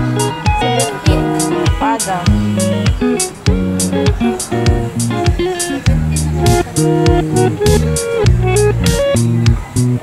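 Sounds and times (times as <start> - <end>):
guitar: 0.0 - 10.0
held bass notes: 0.0 - 10.0.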